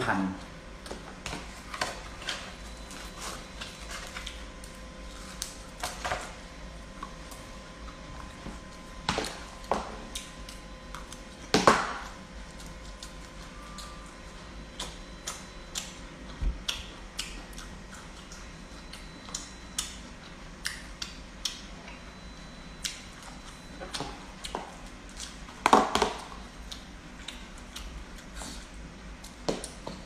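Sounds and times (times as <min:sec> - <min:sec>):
open-mouthed chewing: 0:02.5 - 0:05.8, 0:12.4 - 0:22.0, 0:26.2 - 0:29.8.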